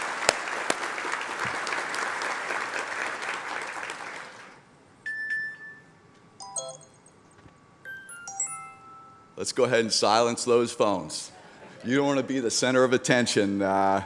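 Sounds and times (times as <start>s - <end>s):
audience applause: 0.0s - 4.6s
phone chiming ringtone: 5.1s - 7.1s, 7.9s - 9.4s.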